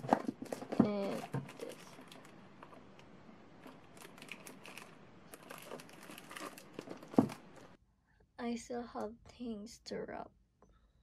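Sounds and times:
perfume box crinkling and clicking: 0:00.0 - 0:02.8.

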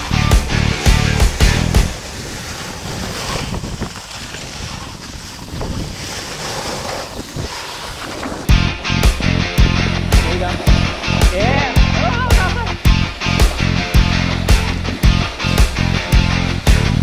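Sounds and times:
rock music: 0:00.0 - 0:02.0, 0:08.5 - 0:17.0
snowboard sliding over snow: 0:00.0 - 0:17.0
wind on microphone: 0:00.7 - 0:17.0.

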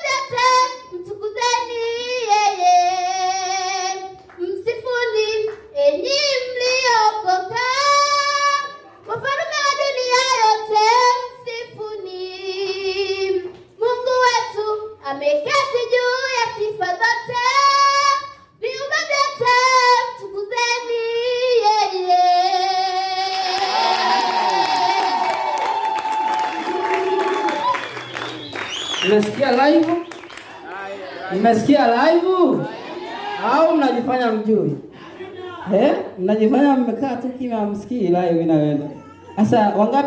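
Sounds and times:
girl singing into microphone: 0:00.0 - 0:23.7.

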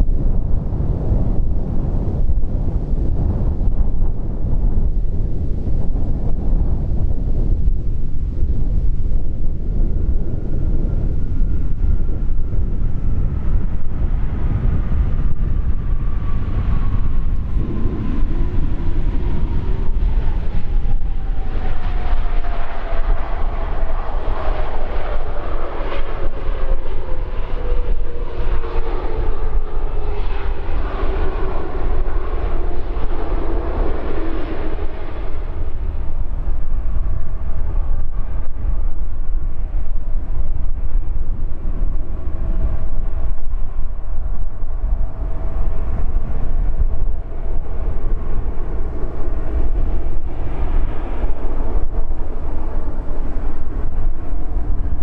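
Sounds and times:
low rumble: 0:00.0 - 0:55.0
jet engines whining: 0:14.0 - 0:55.0.

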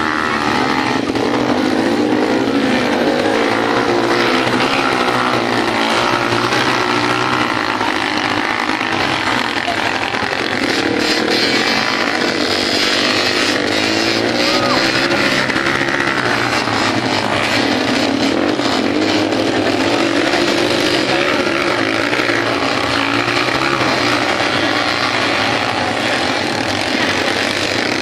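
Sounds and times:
dirt bike engines revving: 0:00.0 - 0:28.0.

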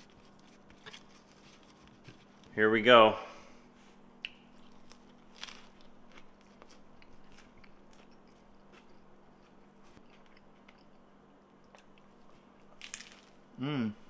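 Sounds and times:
crunchy chewing: 0:04.2 - 0:12.8.

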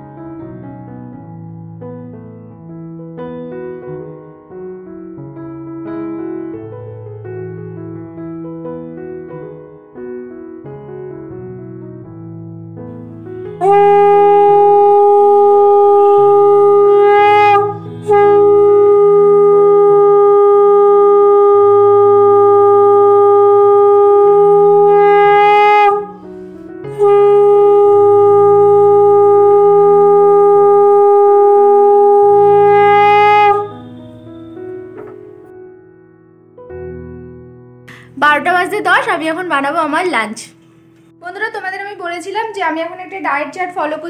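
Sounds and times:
soft piano music: 0:00.0 - 0:44.0
conch shell blasts: 0:13.6 - 0:26.2, 0:26.9 - 0:35.1.

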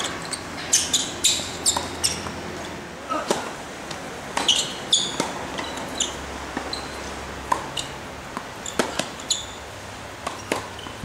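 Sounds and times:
shoes squeaking on court: 0:00.0 - 0:03.5, 0:04.3 - 0:11.0
racket hitting tennis ball: 0:00.7 - 0:02.4, 0:03.1 - 0:09.5, 0:10.2 - 0:11.0
ball bouncing: 0:08.3 - 0:09.3, 0:10.2 - 0:11.0.

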